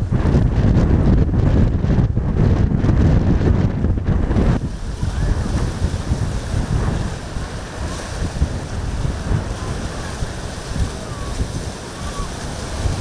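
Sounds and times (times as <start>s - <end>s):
choppy sea wash: 0.0s - 13.0s
wind buffeting microphone: 0.0s - 13.0s
boat bow slamming through waves: 4.2s - 13.0s.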